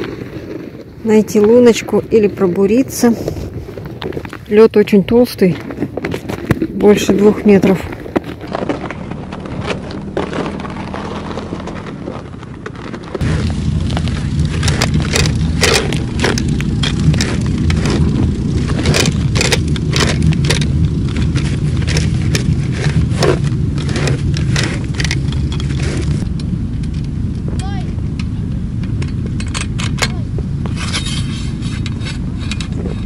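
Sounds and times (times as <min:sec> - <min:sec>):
shuffling over snow: 0:00.0 - 0:04.6, 0:13.2 - 0:15.0
ice auger grinding ice: 0:05.6 - 0:26.2.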